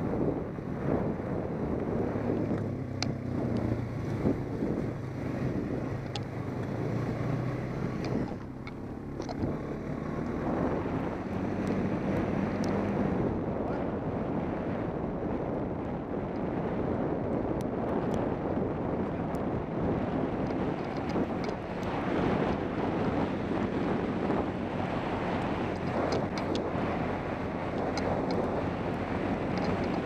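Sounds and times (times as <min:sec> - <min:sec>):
atv engine running: 0:00.0 - 0:30.0
wind rushing over microphone: 0:00.0 - 0:30.0
sharp ticks: 0:02.6 - 0:03.7, 0:06.0 - 0:06.3, 0:08.0 - 0:09.5, 0:25.7 - 0:26.7, 0:27.7 - 0:28.6, 0:29.5 - 0:30.0.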